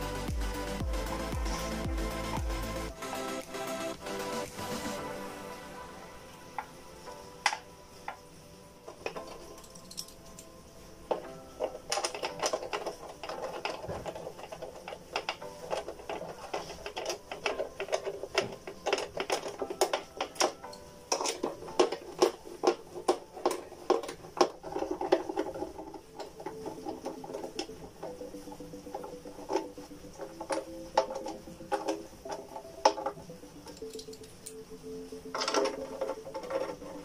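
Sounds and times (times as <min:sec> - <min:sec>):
metallic clicks of screws: 0:09.1 - 0:10.5, 0:33.1 - 0:34.6.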